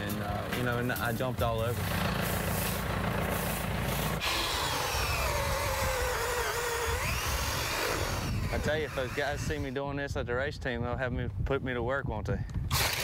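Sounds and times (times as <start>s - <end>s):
tractor engine idling: 0.0s - 4.2s.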